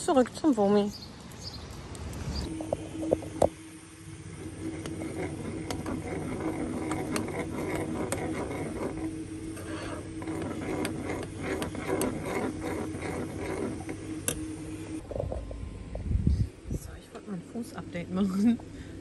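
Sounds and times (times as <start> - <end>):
steady low hum: 0.0 - 19.0
metal spoon stirring in saucepan: 4.2 - 15.0.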